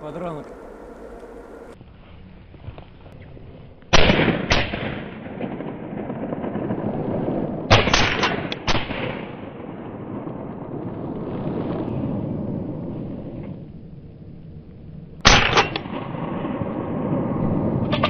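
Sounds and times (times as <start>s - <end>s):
shotgun shots echoing: 3.9s - 10.2s, 15.2s - 17.2s.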